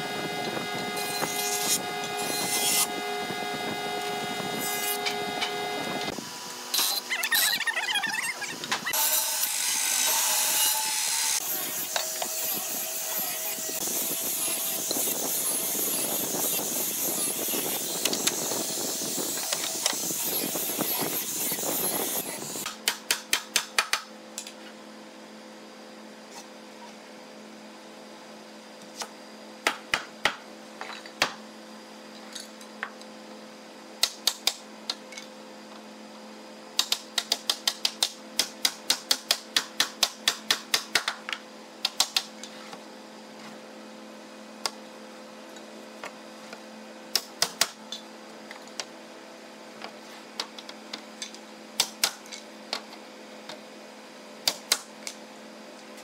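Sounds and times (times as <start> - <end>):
machine hum: 0.0 - 12.4.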